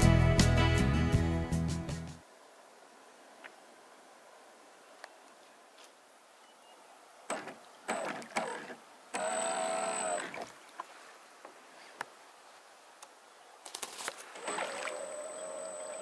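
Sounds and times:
model boat motor whine: 7.3 - 10.5, 14.4 - 16.0.

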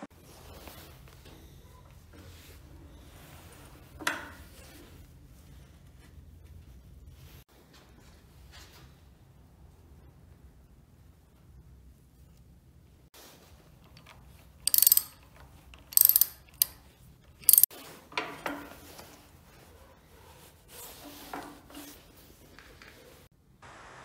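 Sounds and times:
metal parts handling: 13.9 - 17.7
ratchet wrench clicking: 14.0 - 16.8, 17.4 - 17.7.

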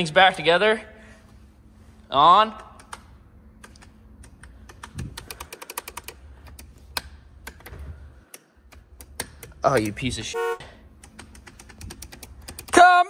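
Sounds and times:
rocker switches clicking: 2.5 - 10.2, 11.0 - 12.8.

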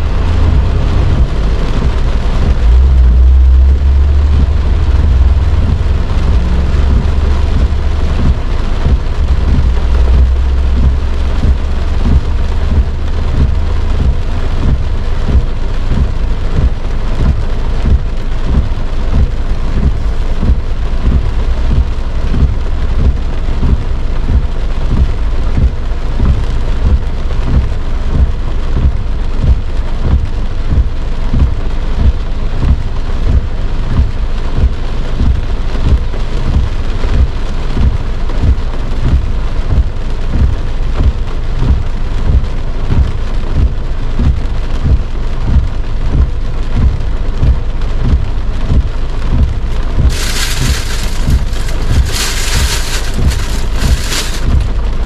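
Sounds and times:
deep low rumble: 0.0 - 55.0
heavy rain on car roof: 0.0 - 55.0
heavy drop thuds: 49.4 - 55.0.

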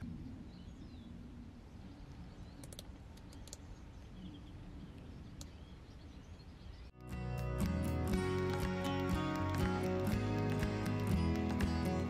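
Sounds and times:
faint bird chirps: 0.0 - 7.0
light clicks: 2.6 - 3.7.

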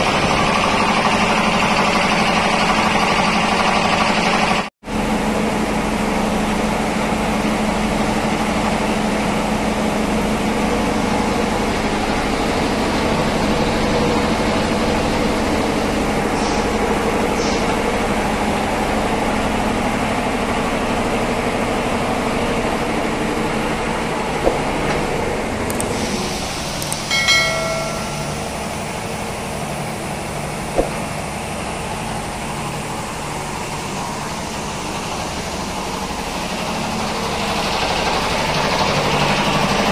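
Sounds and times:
air compressors humming: 5.1 - 39.9
clicks: 25.7 - 25.9, 26.8 - 27.1.

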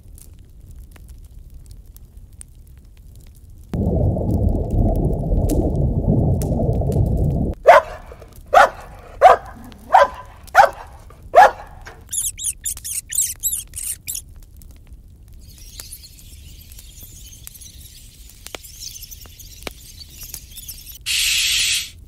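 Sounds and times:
low rushing noise: 3.8 - 7.6
dog barking: 7.6 - 12.5
high-pitched chirps: 11.4 - 14.2, 15.4 - 22.0.

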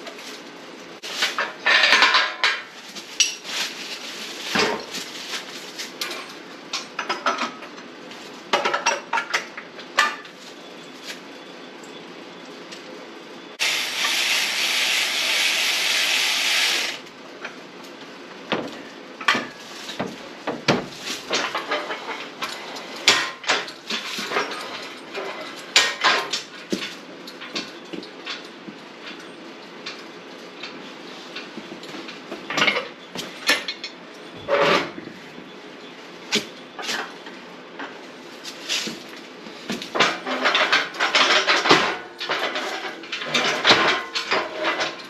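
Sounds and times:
steady hiss: 13.6 - 17.0.

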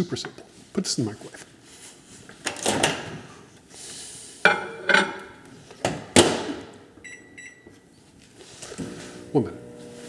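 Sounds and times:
short keypad beeps: 7.0 - 7.7.

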